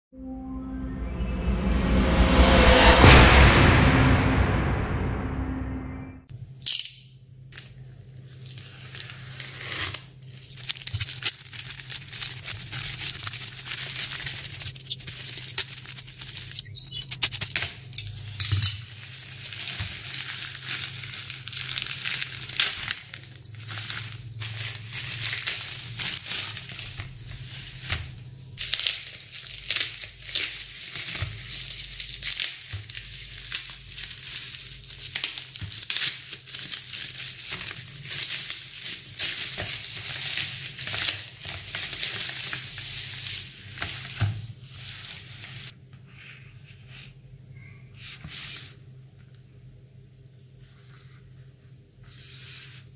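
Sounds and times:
low hum: 0.0 - 6.4
packaging crinkling and rustling: 7.6 - 45.7.

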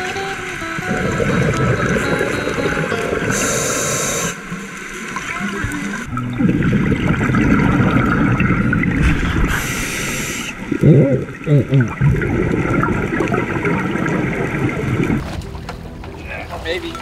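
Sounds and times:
bubbling exhale: 3.1 - 4.4, 6.4 - 15.2
regulator hissing inhale: 3.3 - 4.4, 9.0 - 10.6.

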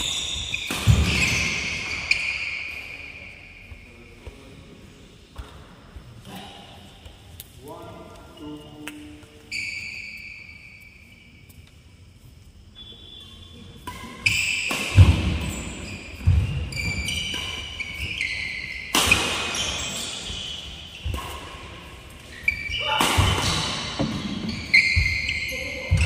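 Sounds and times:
rackets hitting shuttlecock: 0.0 - 2.3, 13.8 - 26.0
shoes squeaking on floor: 0.0 - 4.5, 8.3 - 12.2, 12.8 - 26.0.

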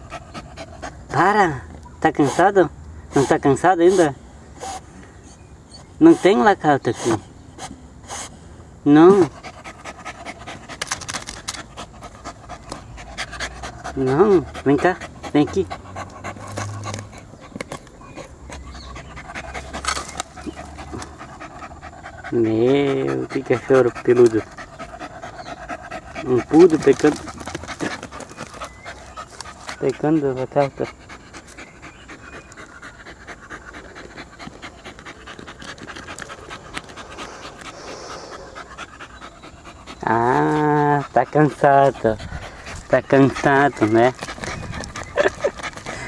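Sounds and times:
dog panting and sniffing: 0.0 - 46.0
digging scuffs in dirt: 19.6 - 21.2.

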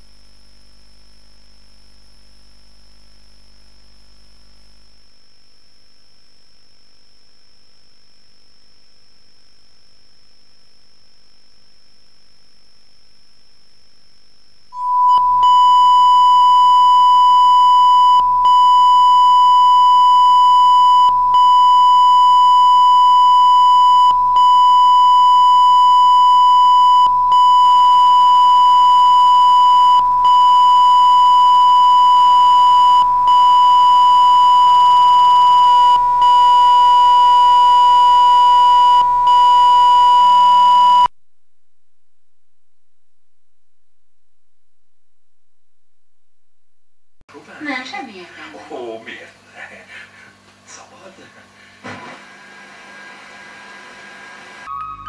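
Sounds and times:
steady test tone: 14.7 - 41.1.

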